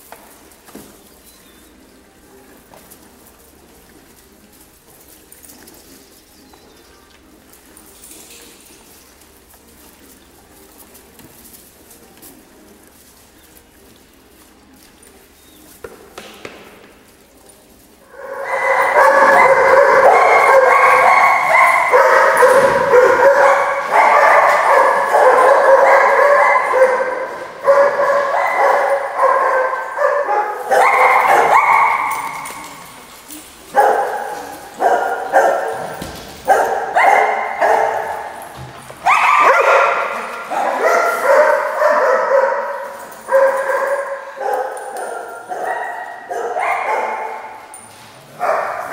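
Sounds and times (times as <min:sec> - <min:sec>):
dogs barking and yipping: 0:18.0 - 0:48.9.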